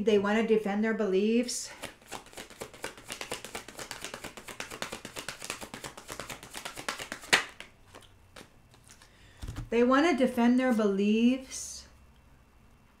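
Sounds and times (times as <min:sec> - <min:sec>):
cards being shuffled: 0:01.7 - 0:09.7.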